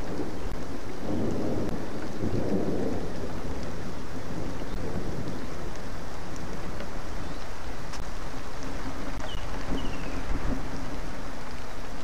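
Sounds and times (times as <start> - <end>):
heavy rain falling: 0.0 - 12.0
thunder rumbling: 0.0 - 12.0.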